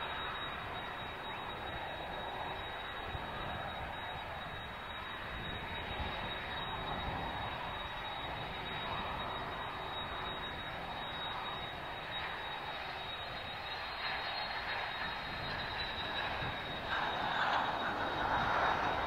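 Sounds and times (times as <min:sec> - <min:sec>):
high steady whine: 0:00.0 - 0:19.0
jet engine noise: 0:00.0 - 0:19.0.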